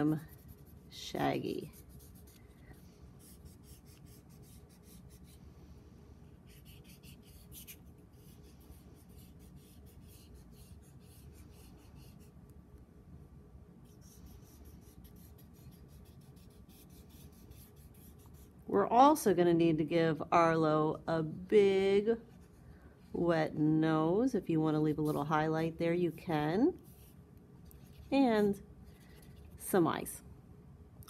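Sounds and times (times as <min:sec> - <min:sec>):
felt-tip marker scratching on paper: 0:00.0 - 0:02.5, 0:03.2 - 0:05.4, 0:06.5 - 0:12.3, 0:13.9 - 0:18.5.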